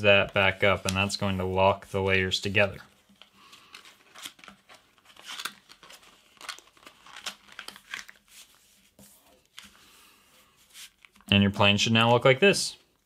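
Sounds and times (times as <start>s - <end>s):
paper crinkling: 2.6s - 11.3s.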